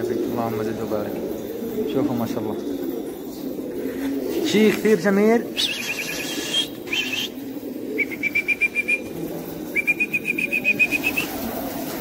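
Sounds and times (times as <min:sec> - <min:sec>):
pigeons cooing: 0:00.0 - 0:12.0
wing flutters: 0:03.8 - 0:07.4, 0:08.0 - 0:12.0
bird's high chirps: 0:05.5 - 0:07.4.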